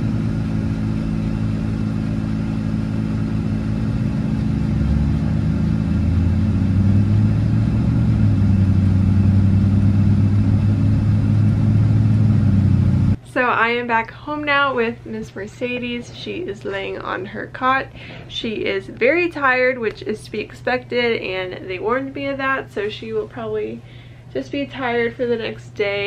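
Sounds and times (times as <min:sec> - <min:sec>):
vehicle engine and road noise: 0:00.0 - 0:13.2.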